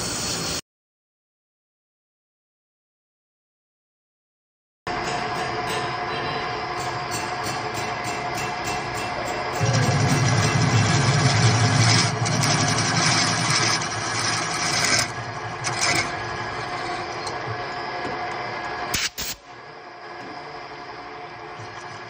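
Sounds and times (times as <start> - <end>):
machine humming: 4.9 - 22.0
quieter steady running sound: 6.1 - 18.9.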